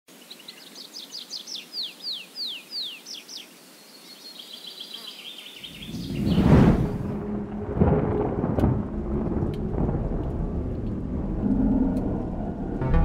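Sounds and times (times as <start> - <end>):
songbird singing: 0.1 - 6.7
deep rumble: 6.0 - 13.0.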